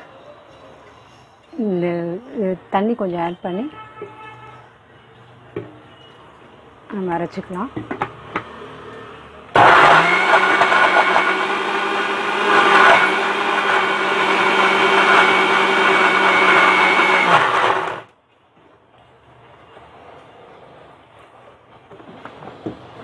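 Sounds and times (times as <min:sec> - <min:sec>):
electric mixer grinder running: 0:09.6 - 0:18.1.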